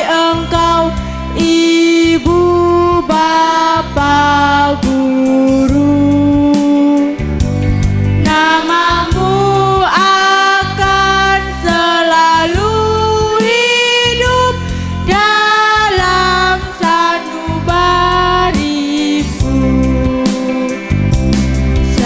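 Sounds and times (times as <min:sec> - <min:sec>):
amplified backing music with bass: 0:00.0 - 0:22.0
girls' choir singing: 0:08.2 - 0:12.6.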